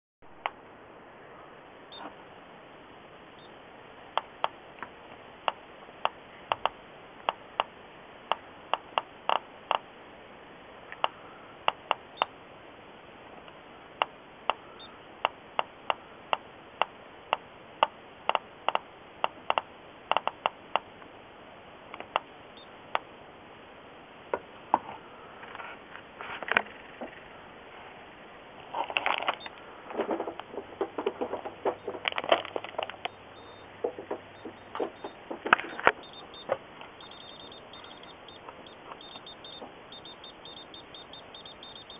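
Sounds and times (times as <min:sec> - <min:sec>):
geiger counter clicking: 0:05.4 - 0:07.7, 0:08.3 - 0:09.9, 0:10.9 - 0:12.4, 0:13.5 - 0:20.9, 0:21.9 - 0:22.3, 0:31.2 - 0:41.9.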